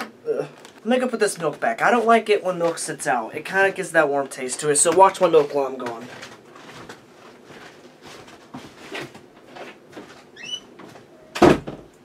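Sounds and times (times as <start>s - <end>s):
short squeak: 10.4s - 10.7s.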